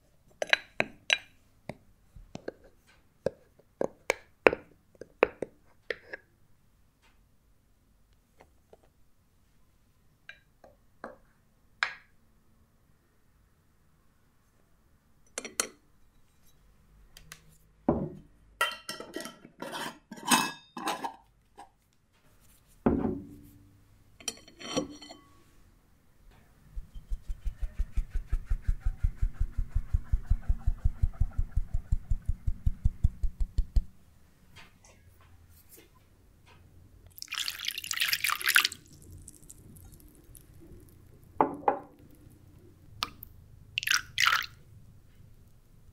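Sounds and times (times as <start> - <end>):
fast tapping of sieve: 37.2 - 38.8.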